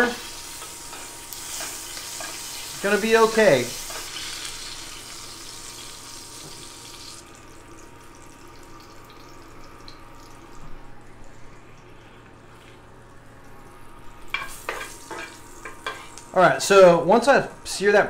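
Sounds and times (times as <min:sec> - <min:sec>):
steak sizzling in a skillet: 0:00.0 - 0:07.5, 0:14.3 - 0:16.3.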